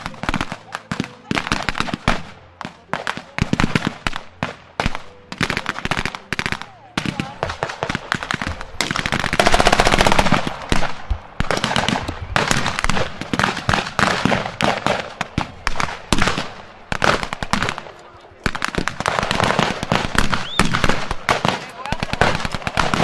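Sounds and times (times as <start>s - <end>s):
rifle shots: 0.0s - 23.0s
machine-gun bursts: 3.2s - 10.6s.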